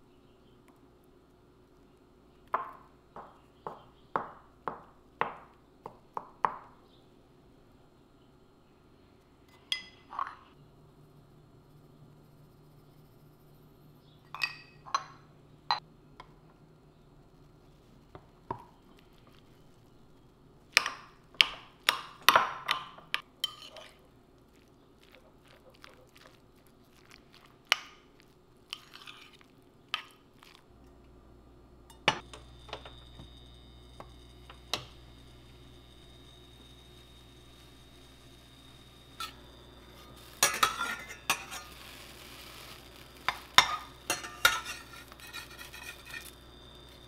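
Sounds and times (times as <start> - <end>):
low hum with high whine: 0.0 - 47.0
fork clinking against ceramic bowl: 22.7 - 24.0, 43.3 - 46.3.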